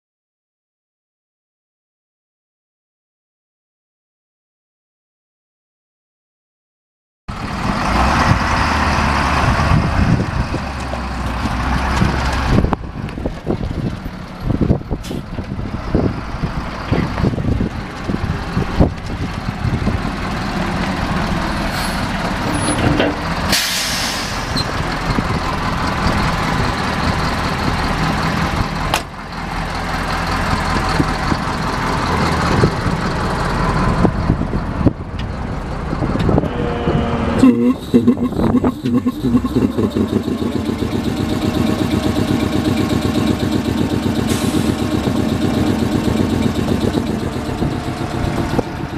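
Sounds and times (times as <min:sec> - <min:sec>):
diesel truck engine running: 0:07.3 - 0:48.9
air brake hiss: 0:15.0 - 0:15.3, 0:23.5 - 0:24.6.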